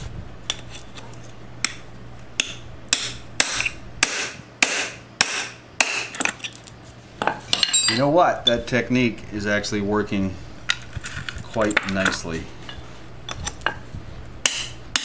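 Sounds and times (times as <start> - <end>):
hammer striking steel chisel: 2.4 - 6.2, 14.4 - 15.0.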